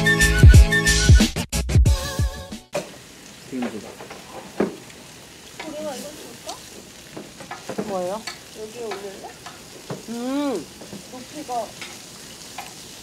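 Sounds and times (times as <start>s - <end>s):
meat sizzling on a grill: 2.0s - 13.0s
people talking: 3.5s - 3.9s, 5.6s - 6.7s, 7.8s - 9.4s, 10.0s - 11.8s.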